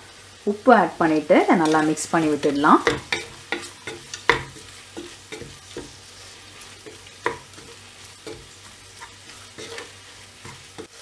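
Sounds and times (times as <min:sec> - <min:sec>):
onions sizzling in a pot: 0:00.0 - 0:11.0
spatula scraping against pot: 0:02.8 - 0:11.0.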